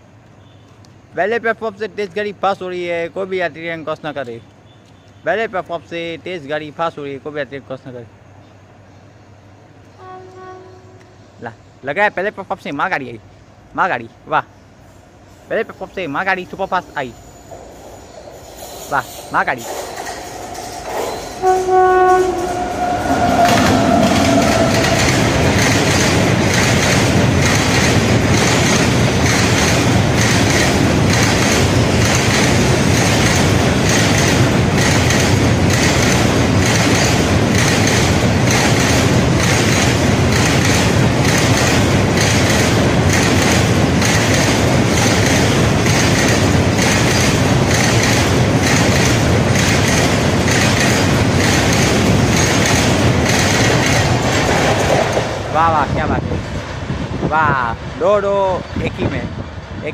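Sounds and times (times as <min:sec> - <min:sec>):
train horn chord: 0:10.0 - 0:11.2, 0:21.4 - 0:25.6
freight wagons rumbling: 0:15.3 - 0:59.8
wheels clacking over rail joints: 0:17.4 - 0:55.7.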